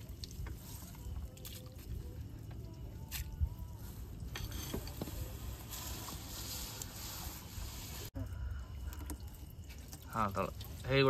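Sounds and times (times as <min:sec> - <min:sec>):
water splashing and dripping: 0:00.0 - 0:04.4, 0:08.8 - 0:11.0.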